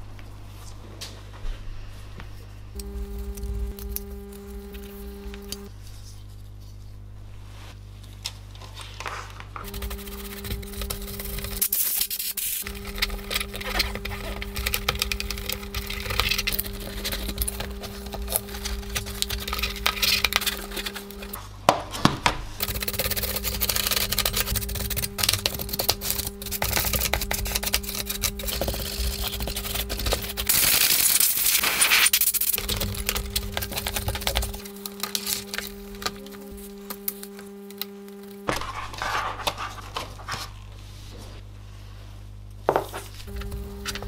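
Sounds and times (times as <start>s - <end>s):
steady low hum: 0.0s - 44.0s
cloth rubbing plastic: 9.0s - 21.5s, 22.5s - 41.5s.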